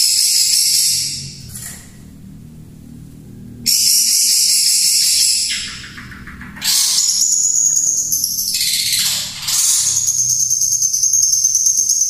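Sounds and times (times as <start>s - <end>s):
fast rattling bird trill: 0.0s - 1.3s, 3.7s - 12.0s
shrikes singing in shrill bursts: 6.6s - 12.0s.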